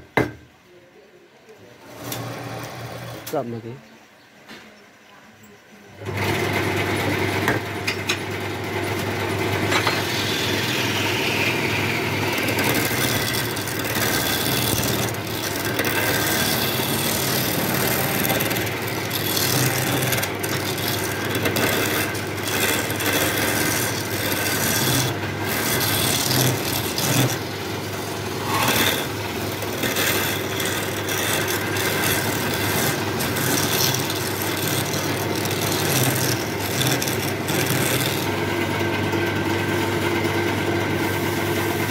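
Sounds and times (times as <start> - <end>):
wood lathe motor hum: 2.0 - 3.4, 6.0 - 41.9
turning tool scraping wood: 8.9 - 41.9.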